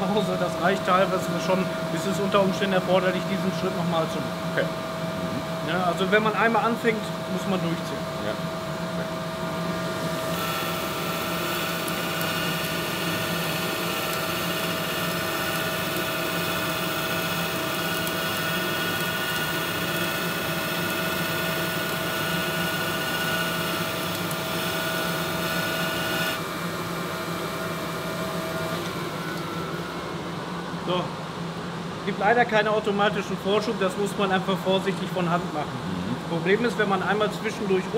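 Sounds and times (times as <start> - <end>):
grinding machine whine: 5.0 - 31.8.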